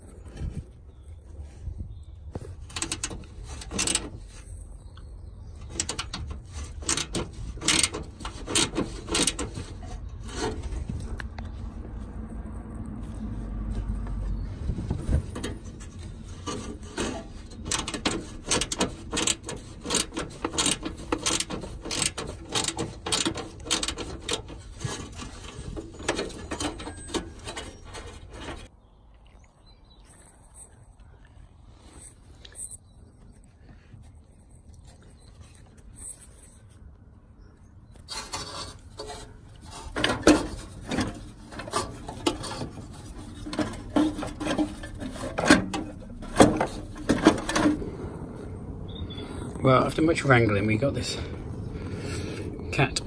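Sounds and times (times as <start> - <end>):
ratchet wrench clicking: 6.8 - 9.4, 17.7 - 24.4.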